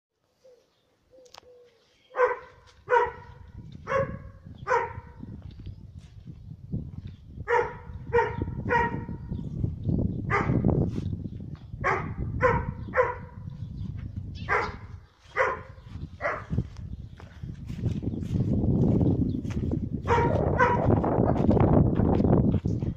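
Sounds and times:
dog barking: 2.1s - 5.3s, 7.5s - 9.3s, 10.3s - 10.7s, 11.8s - 13.6s, 14.5s - 16.7s, 20.0s - 21.0s.

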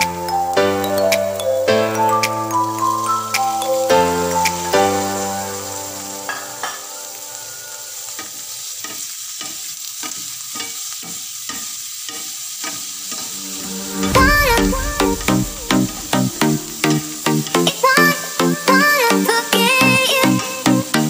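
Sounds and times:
background music: 0.0s - 7.8s, 12.9s - 21.0s
food sizzling in a pan: 0.0s - 21.0s.

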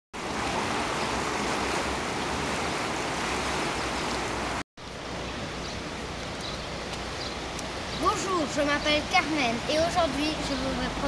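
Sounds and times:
river water rushing: 0.2s - 11.0s.

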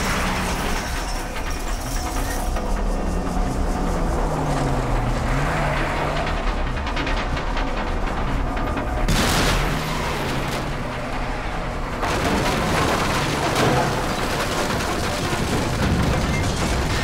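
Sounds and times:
bus engine: 0.0s - 17.0s
crashing and banging: 7.8s - 17.0s.

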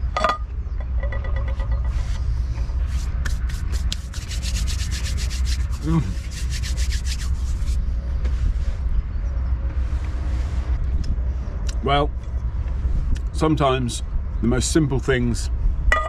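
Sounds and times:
wind rumble on microphone: 0.0s - 16.0s
hands brushing together: 1.8s - 8.9s.

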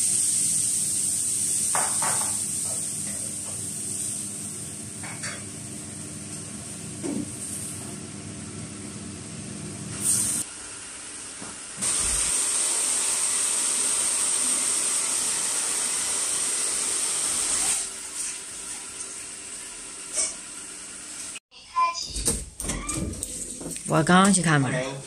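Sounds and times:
pan sizzling: 0.0s - 5.7s, 9.9s - 21.4s
hair dryer blowing: 11.8s - 17.9s.

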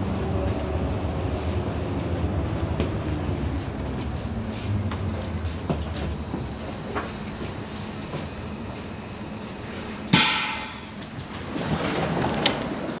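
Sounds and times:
train rumble and hiss: 0.0s - 13.0s
sharp metallic clang: 10.1s - 11.2s.

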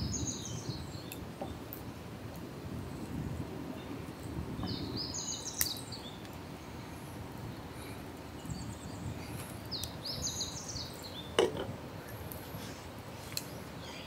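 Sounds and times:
small bird chirping: 4.6s - 6.3s.

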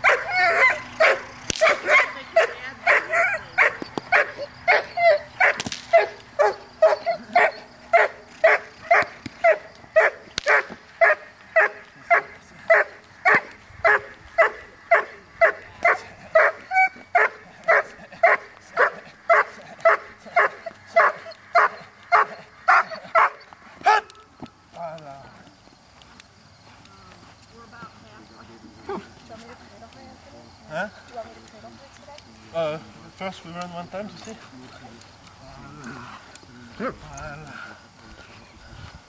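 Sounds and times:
dog barking: 0.0s - 24.1s.

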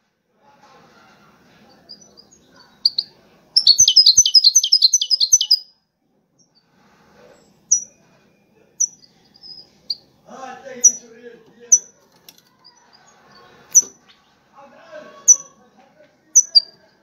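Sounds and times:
goldfinch singing: 2.0s - 5.6s
bird call notes: 2.8s - 5.6s.

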